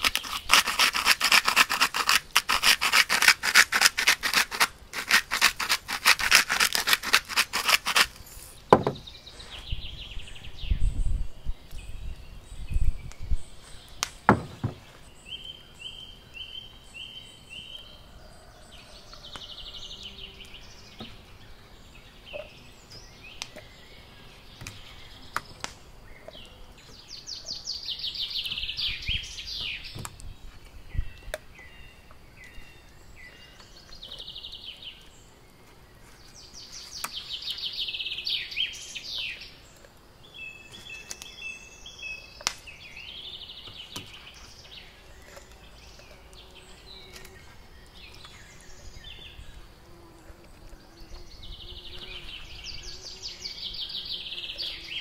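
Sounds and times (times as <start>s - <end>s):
birds chirping: 7.2s - 55.0s
handling knocks: 8.7s - 9.1s, 14.3s - 14.9s.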